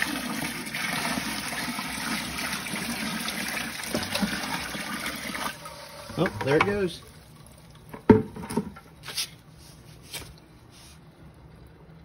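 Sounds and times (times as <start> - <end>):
water pouring and splashing: 0.0 - 9.3.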